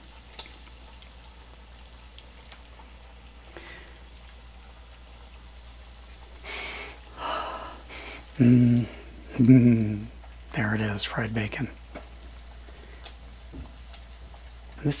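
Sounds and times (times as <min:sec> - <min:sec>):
bacon sizzling in hot oil: 0:00.0 - 0:15.0.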